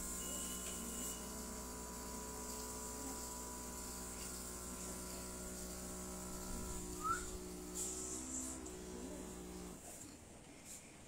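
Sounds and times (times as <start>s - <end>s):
compressor humming: 0.0s - 9.9s
air hissing: 3.6s - 9.8s.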